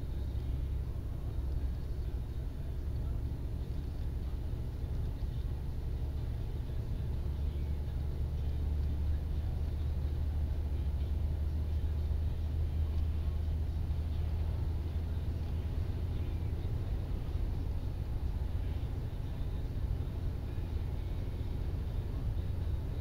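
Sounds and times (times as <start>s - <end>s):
car engine and tyre rumble: 0.0s - 23.0s.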